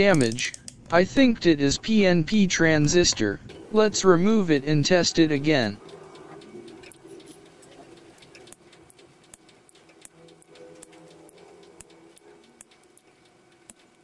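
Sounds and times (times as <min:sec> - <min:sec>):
low steady hum: 0:00.0 - 0:14.0
solder flux crackling: 0:03.5 - 0:14.0.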